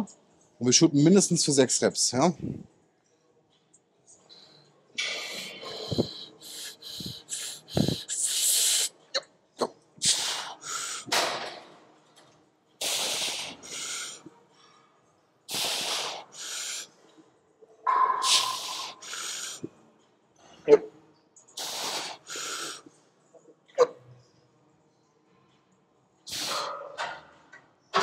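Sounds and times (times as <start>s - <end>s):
forceful hissing breaths: 4.3s - 9.0s, 10.0s - 11.4s, 12.8s - 14.3s, 15.5s - 17.0s, 18.2s - 19.8s, 21.6s - 23.0s, 26.3s - 26.8s.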